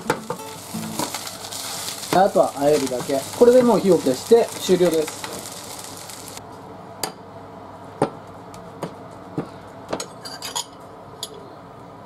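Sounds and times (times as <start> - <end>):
fried rice sizzling in pan: 0.0 - 6.4.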